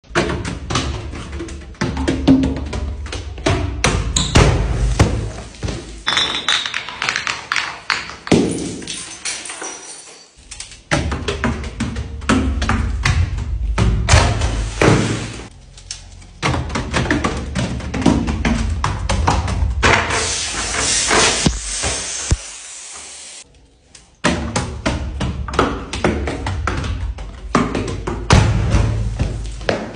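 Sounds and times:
plastic bottles hitting stone steps: 0.1s - 10.2s
soda splashing and hissing: 14.5s - 15.5s, 20.0s - 23.4s.

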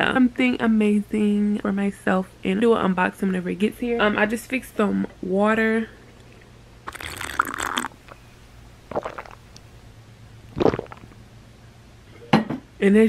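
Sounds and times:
person sipping water: 6.2s - 8.3s, 8.9s - 9.6s, 10.5s - 11.2s
person swallowing: 6.9s - 8.2s, 8.9s - 9.6s, 10.5s - 11.2s.

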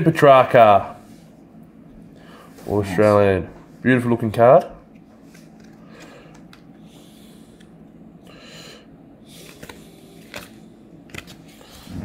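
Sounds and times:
low steady hum: 0.0s - 12.0s
cards clicking and sliding: 5.0s - 6.9s, 9.3s - 11.8s.

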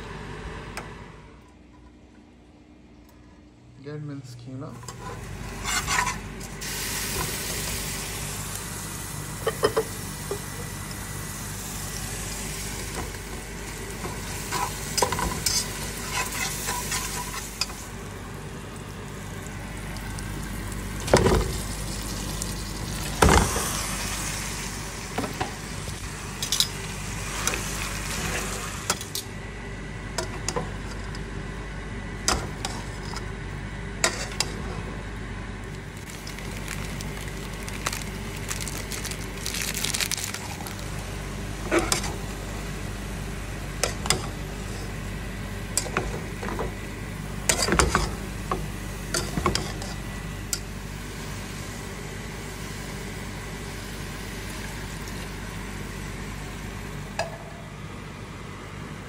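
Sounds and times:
meat sizzling in pot: 5.3s - 29.0s, 36.0s - 41.0s.

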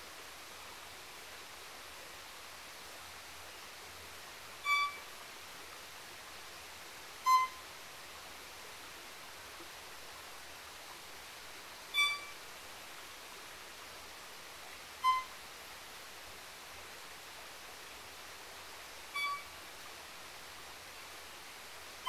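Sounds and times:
soft forest ambience hiss: 0.0s - 22.0s
violin single notes: 4.6s - 5.0s, 7.2s - 7.6s, 11.9s - 12.4s, 15.0s - 15.3s, 19.2s - 19.5s.

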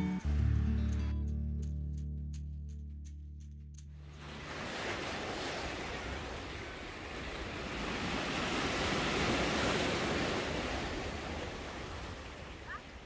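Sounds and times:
waves breaking on rocky shore: 4.2s - 13.0s.

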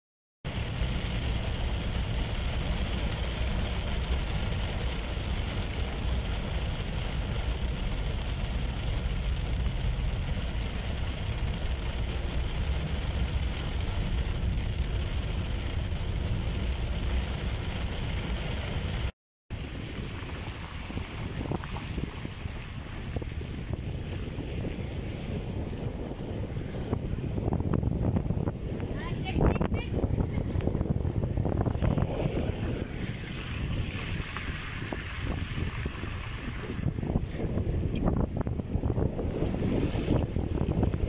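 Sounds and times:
heavy rain on windshield: 0.5s - 22.4s, 28.4s - 30.2s
car driving on wet road: 0.5s - 41.0s
wind noise on microphone: 0.5s - 41.0s.

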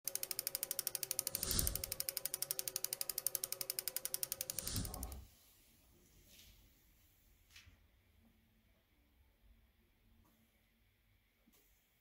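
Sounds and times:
clicking gears ticking: 0.0s - 5.2s.

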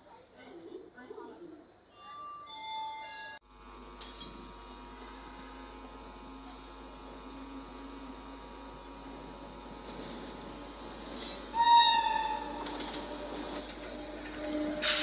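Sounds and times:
electric locomotive humming: 0.0s - 15.0s.

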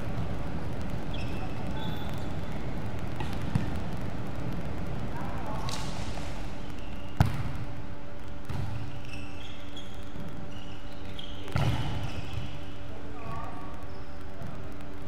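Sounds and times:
hum of echoing hall: 0.0s - 15.0s
shoes squeaking on court: 1.0s - 3.7s, 8.4s - 12.8s
volleyball being hit: 7.2s - 7.7s, 11.5s - 12.0s.

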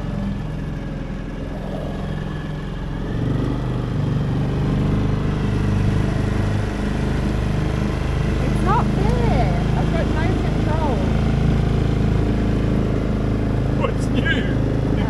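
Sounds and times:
small outboard motor running: 0.0s - 15.0s.

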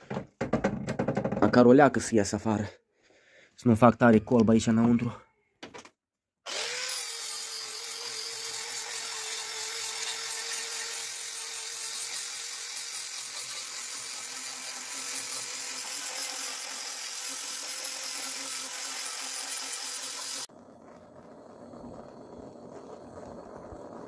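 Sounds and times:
angle grinder on wood: 6.5s - 20.5s.

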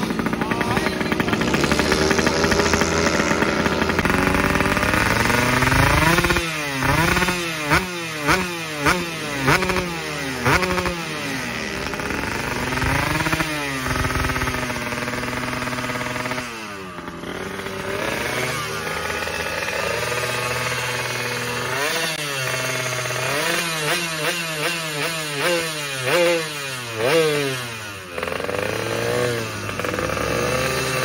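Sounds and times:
motorcycle engine revving: 0.0s - 31.0s
sharp throttle blips: 0.0s - 31.0s.

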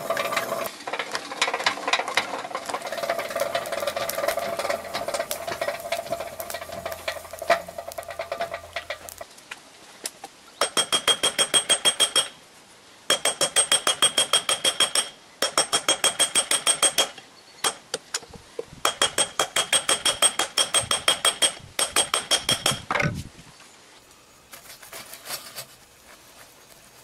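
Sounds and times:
forge hum: 0.0s - 0.7s, 2.1s - 9.2s
hammer striking steel on anvil: 10.6s - 12.4s, 13.1s - 17.8s.

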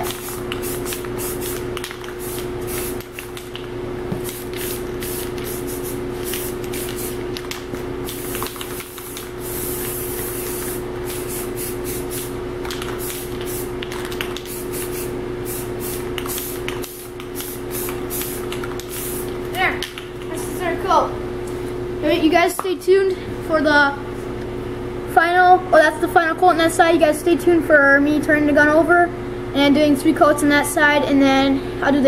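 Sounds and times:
spray paint can hissing: 0.0s - 3.6s, 4.2s - 7.2s, 8.0s - 19.4s
steady low hum: 0.0s - 32.0s.

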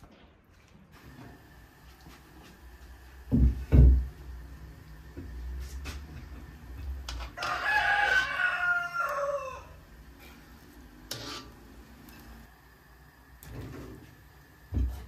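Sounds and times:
rooster crowing: 7.4s - 9.9s.

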